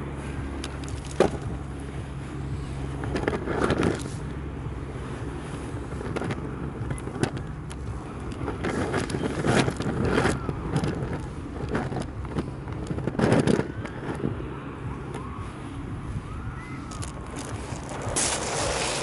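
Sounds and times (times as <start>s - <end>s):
wind on microphone: 0.0s - 19.0s
pebbles clattering in surf: 16.9s - 19.0s
waves washing up shingle beach: 17.0s - 19.0s.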